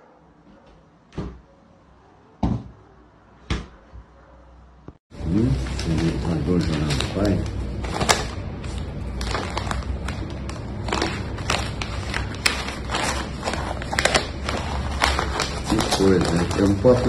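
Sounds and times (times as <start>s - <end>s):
newspaper rustling and crinkling: 5.2s - 17.0s.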